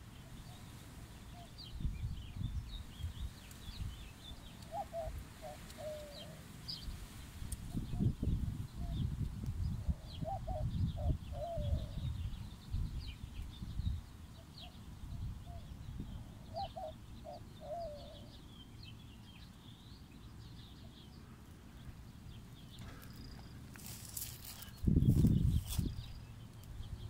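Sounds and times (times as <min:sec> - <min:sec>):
wind on microphone: 0:01.6 - 0:04.1, 0:06.8 - 0:14.1, 0:24.7 - 0:26.2
low wavering bird call: 0:04.6 - 0:06.4, 0:16.4 - 0:18.4.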